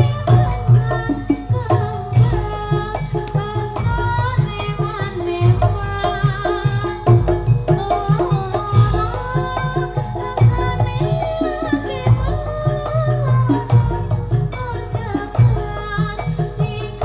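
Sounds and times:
hand drums beating: 0.0s - 17.0s
person singing: 0.0s - 17.0s.

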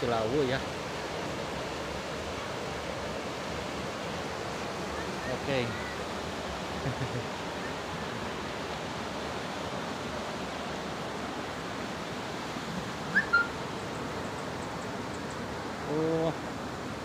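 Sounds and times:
wind rushing in trees: 0.0s - 17.0s
bird chirp: 13.1s - 15.5s.

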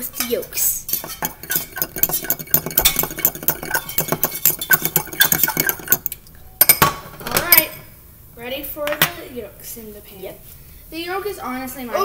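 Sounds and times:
fork beating eggs in glass bowl: 0.2s - 6.2s.

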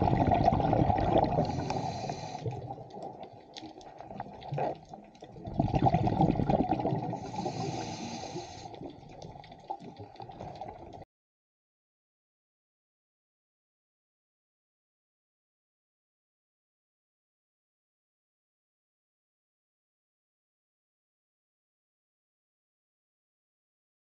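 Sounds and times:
gurgling bubbles underwater: 0.0s - 11.0s.

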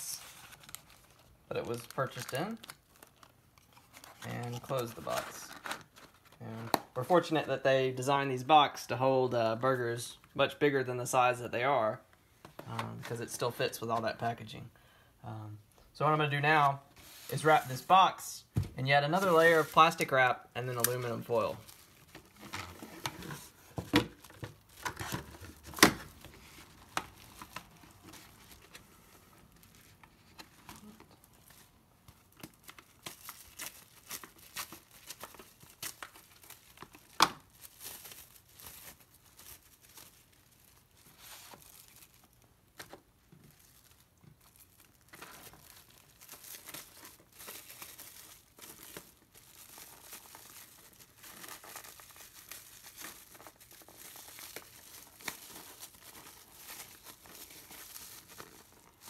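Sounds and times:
plastic wrap crinkling: 0.0s - 7.0s, 19.1s - 59.0s
plastic wrap tearing: 0.2s - 6.8s, 19.1s - 29.7s, 30.7s - 42.8s, 43.5s - 59.0s.

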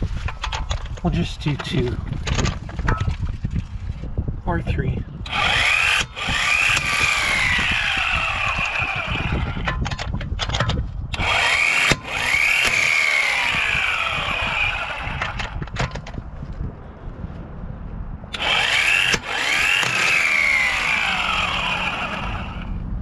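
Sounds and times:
electric impact wrench: 5.3s - 15.8s, 18.3s - 22.8s.

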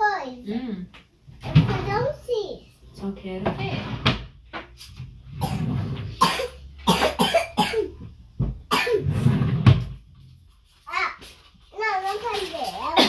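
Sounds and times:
person coughing: 6.2s - 8.0s, 8.7s - 9.0s.

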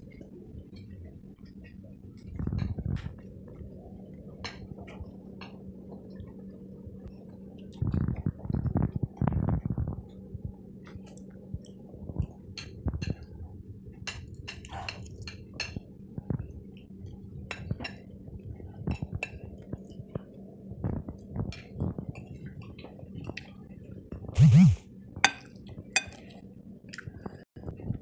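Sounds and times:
steady low hum: 0.0s - 14.1s, 24.4s - 25.1s.

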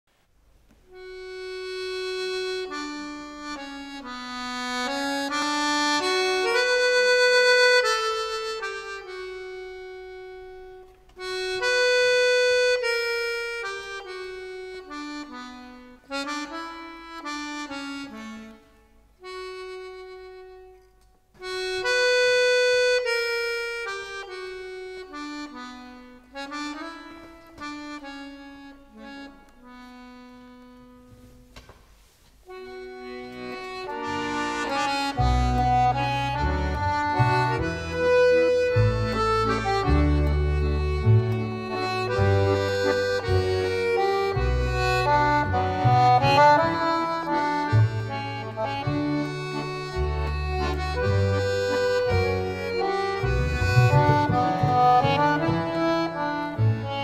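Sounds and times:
slow melody on reed instrument: 32.6s - 57.0s.

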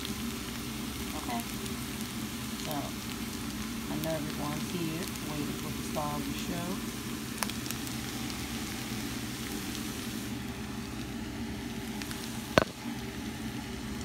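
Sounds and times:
potatoes sizzling in oil: 0.0s - 14.0s.

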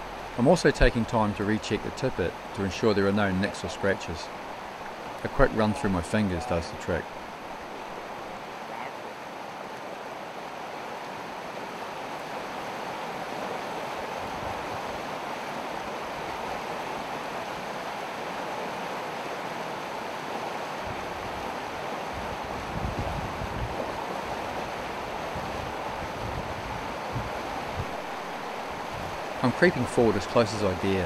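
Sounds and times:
river water rushing: 0.0s - 31.0s
wind buffeting microphone: 20.8s - 29.4s.

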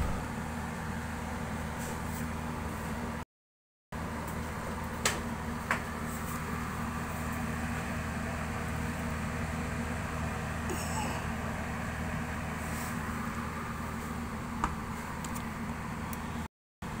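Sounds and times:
ice maker humming: 4.0s - 17.0s.

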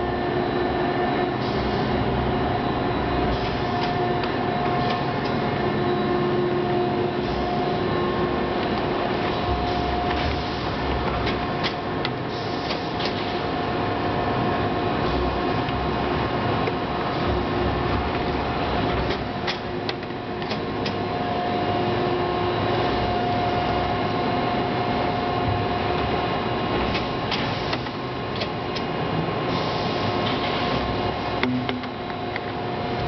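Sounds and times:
sharp mechanical clicks and knocks: 9.6s - 13.3s, 18.1s - 21.0s, 26.8s - 28.9s, 31.4s - 32.6s.

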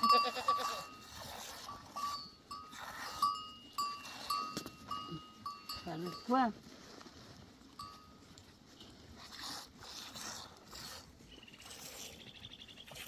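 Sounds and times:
goat bleating: 0.0s - 1.6s.

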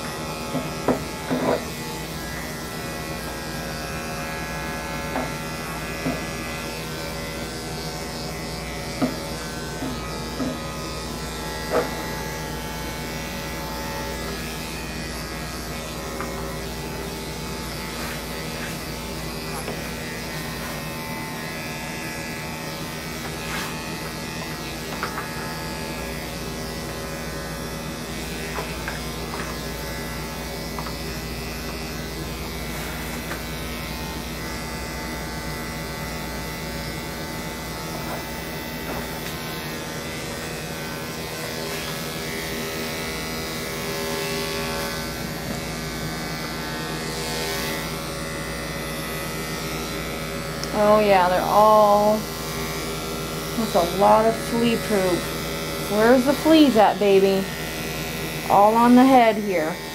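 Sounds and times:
dog clippers humming: 0.0s - 59.9s.

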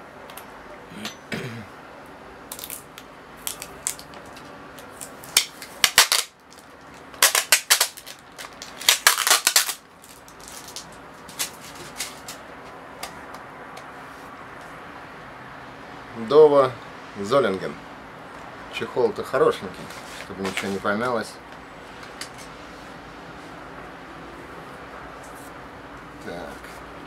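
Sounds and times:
adhesive tape ripping: 2.5s - 12.4s.

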